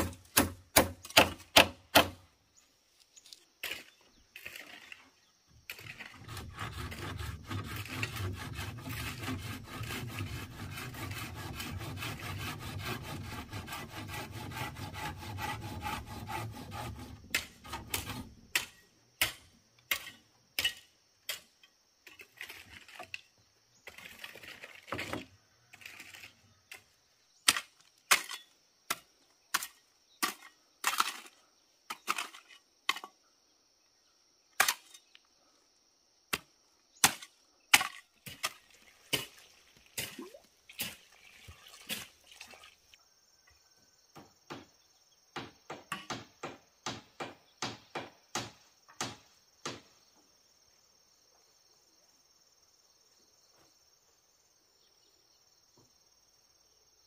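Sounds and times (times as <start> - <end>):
hand saw cutting wood: 5.7 - 21.4.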